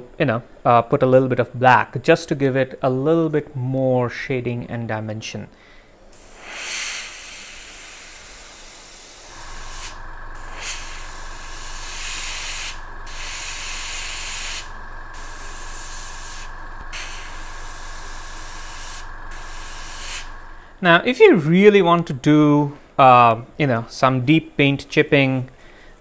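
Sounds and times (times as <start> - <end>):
steady hum: 5.6 - 26.0
airbrush hissing: 6.1 - 20.8.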